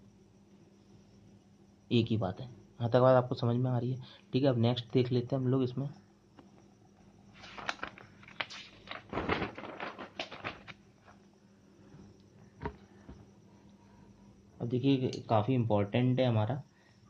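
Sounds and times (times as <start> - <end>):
paper rustling: 7.4 - 11.2
notebook knocks: 12.6 - 13.2.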